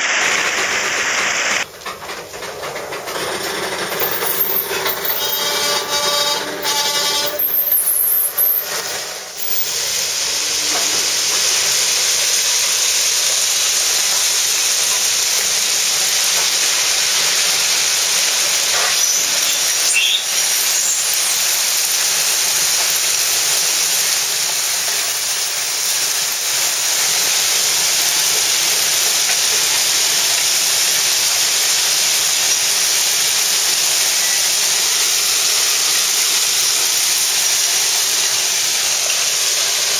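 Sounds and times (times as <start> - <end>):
railcar wheels on rails: 1.6 - 39.9
plow blade scraping stone ballast: 2.2 - 9.7, 20.8 - 27.8
brief squeal: 4.0 - 9.7.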